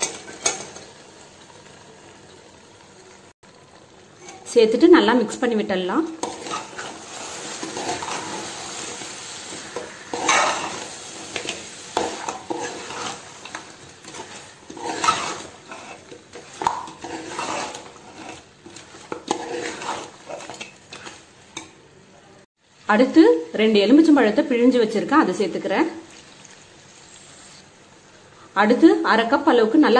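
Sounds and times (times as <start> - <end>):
low sizzle: 0.0 - 29.9
spoon scraping and clinking on pot: 6.2 - 7.0, 9.8 - 21.7.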